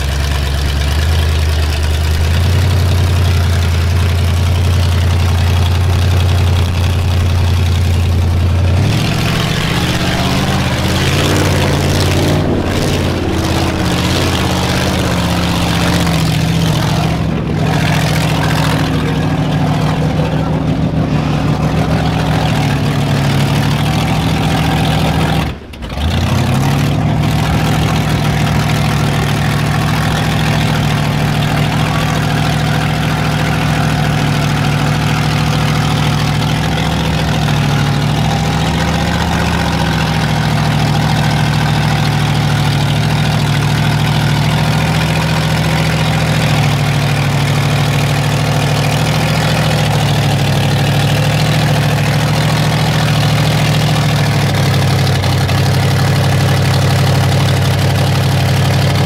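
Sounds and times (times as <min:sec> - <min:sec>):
truck engine running: 0:00.0 - 0:59.0.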